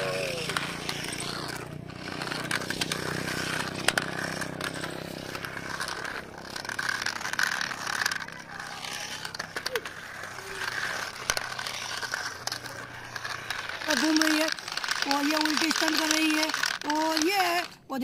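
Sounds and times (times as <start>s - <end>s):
toy car electric motors whining: 0.0s - 18.0s
wheels scraping on concrete: 0.0s - 18.0s.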